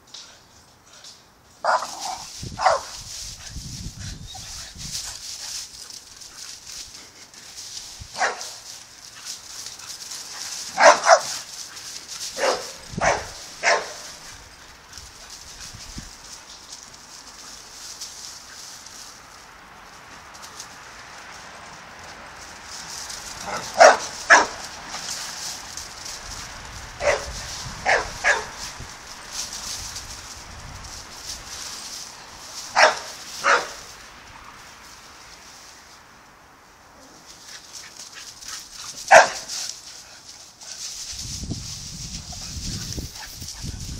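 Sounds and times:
dog barking: 0:01.6 - 0:01.9, 0:02.6 - 0:02.9, 0:08.2 - 0:08.5, 0:10.8 - 0:11.4, 0:12.4 - 0:14.1, 0:23.5 - 0:24.6, 0:27.0 - 0:28.6, 0:32.8 - 0:33.8, 0:39.1 - 0:39.5.

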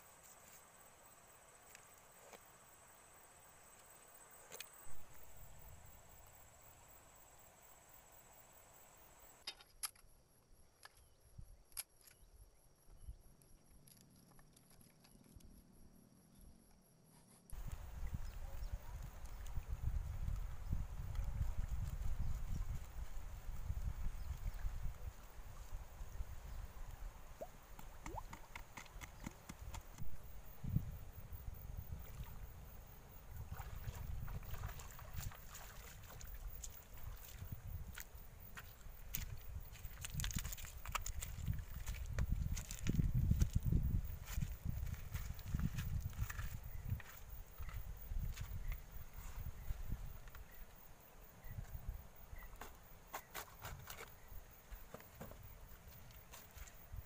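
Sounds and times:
wind: 0:00.0 - 0:57.0
small clicks and knocks: 0:09.4 - 0:10.1
flowing river water: 0:33.3 - 0:37.5.

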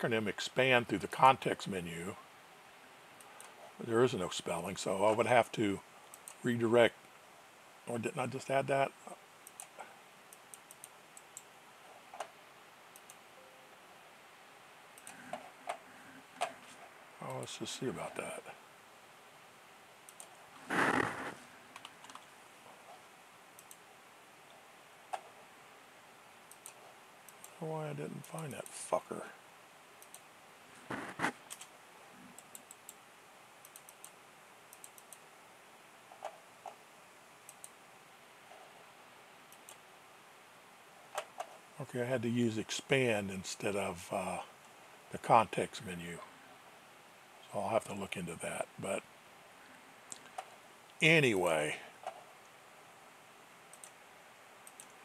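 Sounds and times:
faint steady hiss: 0:00.0 - 0:55.0
computer mouse clicks: 0:06.0 - 0:06.4, 0:09.4 - 0:11.5, 0:12.1 - 0:13.2, 0:15.0 - 0:15.8, 0:20.1 - 0:22.3, 0:23.6 - 0:23.8, 0:26.5 - 0:27.6, 0:30.0 - 0:30.3, 0:31.2 - 0:31.7, 0:32.3 - 0:33.0, 0:33.6 - 0:35.2, 0:37.4 - 0:37.8, 0:39.5 - 0:39.9, 0:53.7 - 0:54.0, 0:54.6 - 0:55.0
rustle: 0:15.0 - 0:55.0.

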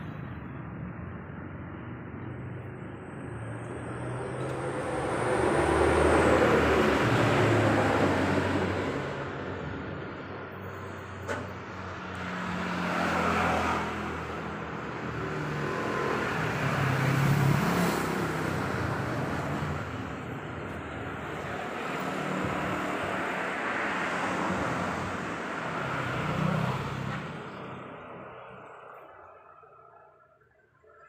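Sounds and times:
road traffic passing: 0:00.0 - 0:31.0.

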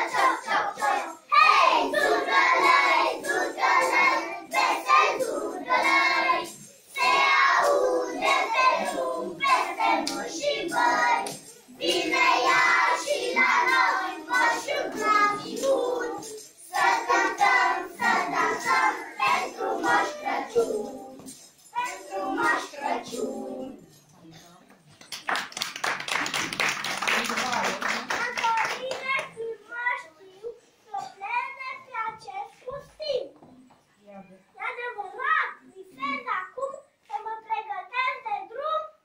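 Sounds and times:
young children singing: 0:00.0 - 0:24.0.

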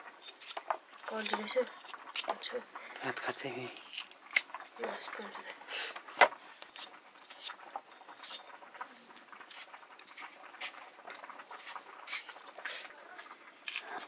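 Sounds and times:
knife scraping squash skin: 0:00.2 - 0:02.5, 0:03.7 - 0:04.4, 0:06.7 - 0:08.5, 0:09.4 - 0:12.8, 0:13.6 - 0:14.0.

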